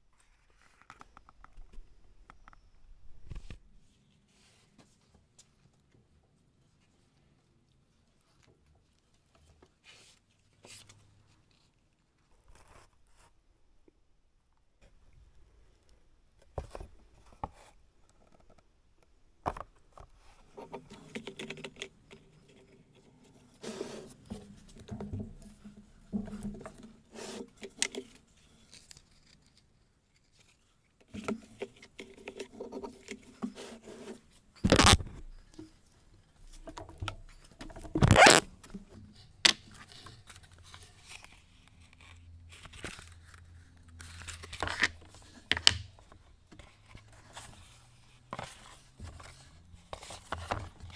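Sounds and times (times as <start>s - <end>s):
wallets and small parts shuffled: 20.4s - 50.9s.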